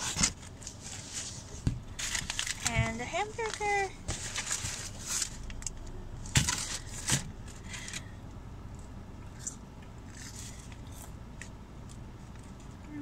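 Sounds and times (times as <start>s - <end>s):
paper wrapper rustling and crinkling: 0.0s - 8.1s.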